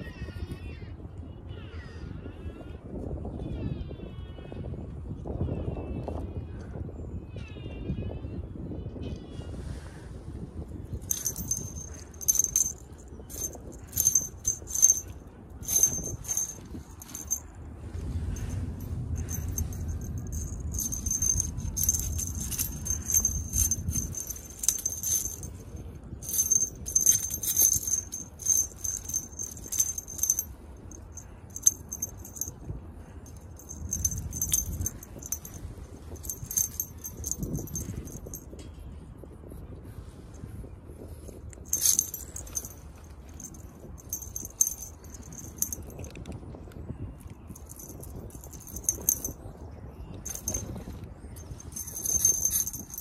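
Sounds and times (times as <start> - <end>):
jingle bell tinkling: 11.0 - 17.5, 18.2 - 38.6, 41.5 - 46.1, 47.5 - 53.0.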